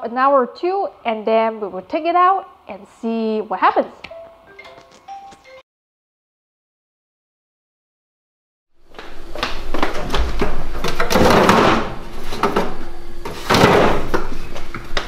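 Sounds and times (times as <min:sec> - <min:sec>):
freezer drawer pulled open: 0:10.0 - 0:14.4.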